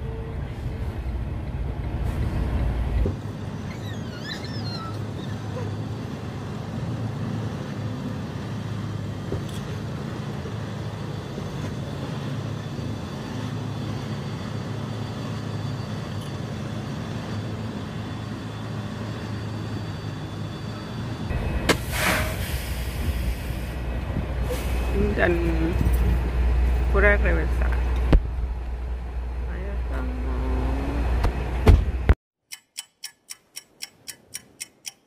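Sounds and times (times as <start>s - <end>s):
truck engine and road noise: 0.0s - 35.0s.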